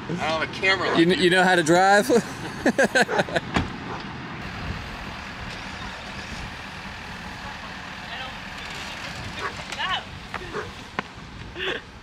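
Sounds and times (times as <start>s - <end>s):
outdoor background noise: 0.0s - 12.0s
truck engine idling: 4.4s - 11.0s.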